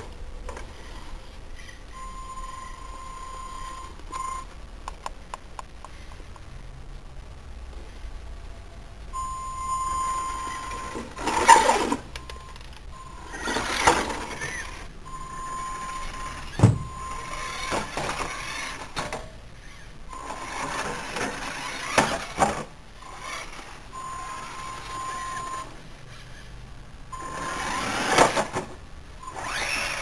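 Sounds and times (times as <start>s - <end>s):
steady high whine: 0.0s - 30.0s
rc car motor and gears: 10.0s - 26.4s, 27.1s - 30.0s.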